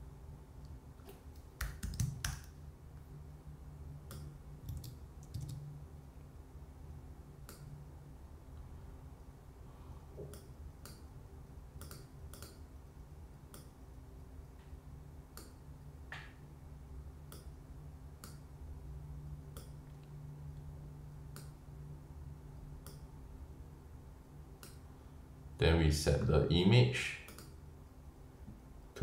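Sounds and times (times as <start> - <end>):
low steady hum: 0.0 - 29.0
computer mouse clicks: 4.1 - 5.6, 7.4 - 7.7, 11.8 - 12.6.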